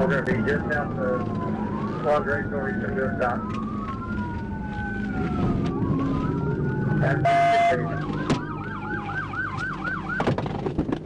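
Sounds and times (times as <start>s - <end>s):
police siren wailing and yelping: 0.0s - 10.4s
car horn blast: 7.2s - 7.9s.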